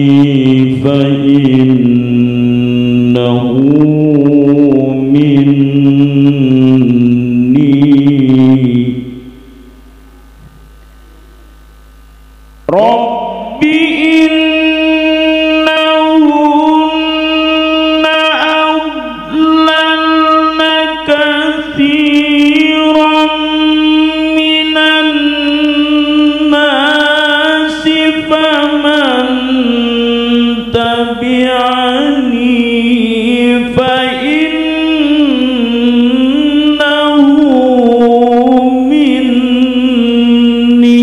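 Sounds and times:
man chanting into a microphone: 0.0 - 9.7, 12.6 - 41.0.

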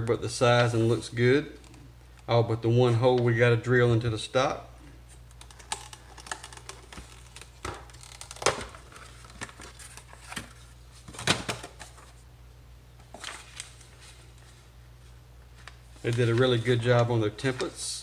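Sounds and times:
plastic packaging crinkling: 5.3 - 10.6.

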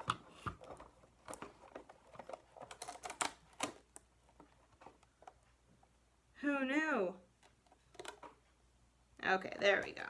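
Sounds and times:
duct tape crackling: 0.0 - 5.5.

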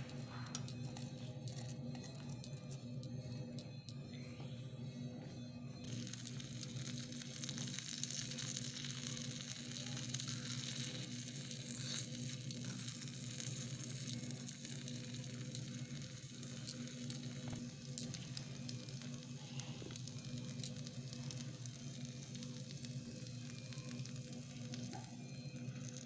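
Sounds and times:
low steady hum: 0.0 - 26.0
food sizzling in a wok: 5.9 - 26.0.

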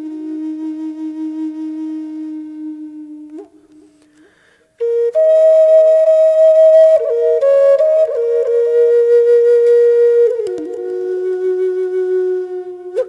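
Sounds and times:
flute music: 0.0 - 13.0.

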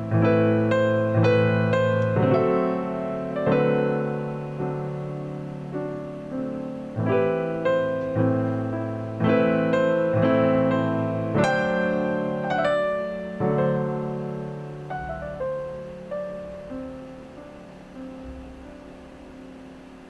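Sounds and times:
gentle piano tune: 0.0 - 20.0.

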